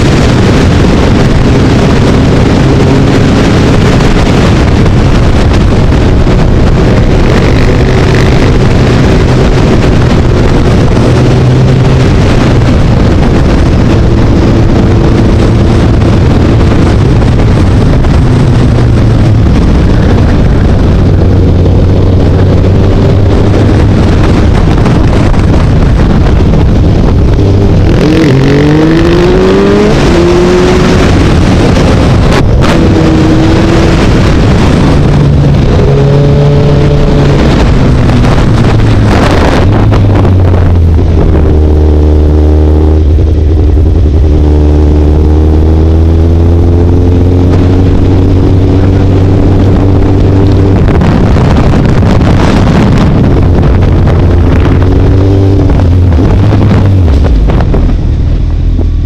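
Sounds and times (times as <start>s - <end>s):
motorcycle engine running: 0.0s - 59.0s
wind rush on microphone: 0.0s - 59.0s.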